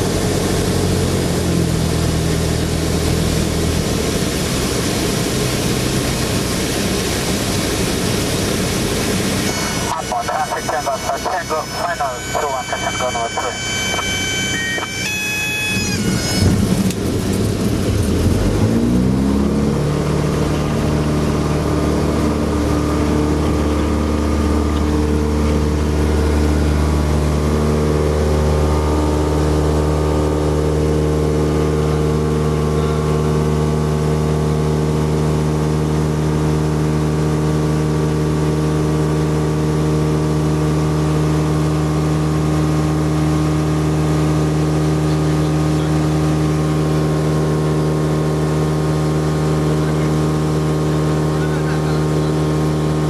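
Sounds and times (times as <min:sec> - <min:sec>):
light aircraft engine and propeller: 0:00.0 - 0:53.0
high steady tone: 0:09.5 - 0:16.6.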